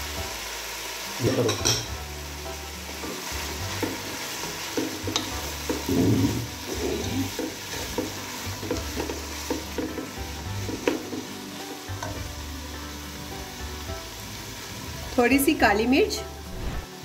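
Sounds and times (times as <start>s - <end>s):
hot oil sizzling: 0.0s - 17.0s
wooden spatula scraping pot: 4.8s - 10.0s.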